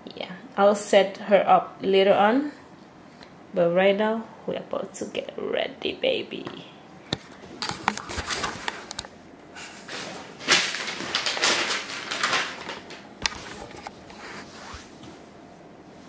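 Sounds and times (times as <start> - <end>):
rustling handling noise: 7.2 - 9.1, 9.7 - 16.0.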